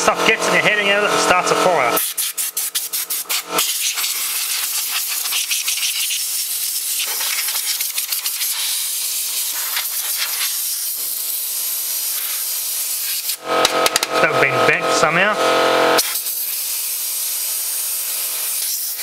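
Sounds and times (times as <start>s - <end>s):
compressed air hissing from blow gun: 2.0s - 13.4s, 16.0s - 19.0s.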